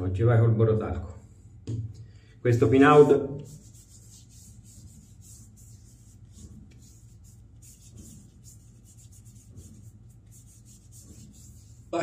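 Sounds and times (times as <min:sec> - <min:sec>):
low steady hum: 0:00.0 - 0:12.0
hands rubbing skin: 0:03.4 - 0:12.0.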